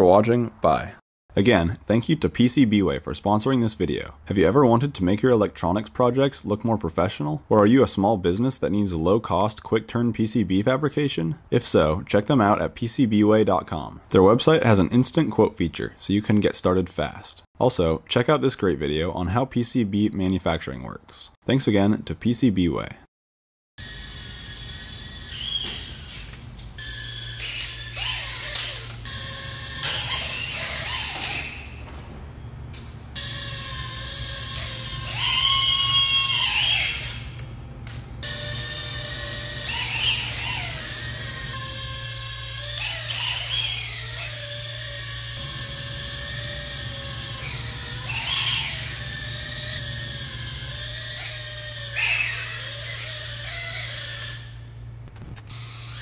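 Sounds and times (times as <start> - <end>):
drone motors whining: 23.8 - 32.1, 32.8 - 56.0
steady low hum: 23.8 - 56.0.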